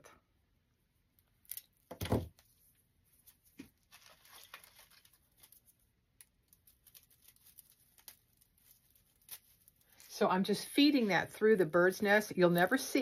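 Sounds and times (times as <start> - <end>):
twig nest crackling and rustling: 3.2 - 13.0.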